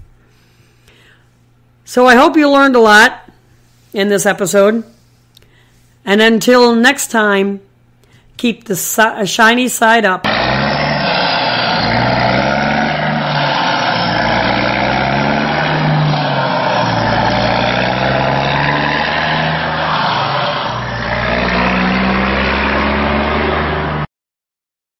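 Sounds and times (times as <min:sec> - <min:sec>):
truck engine running: 0:10.3 - 0:24.1.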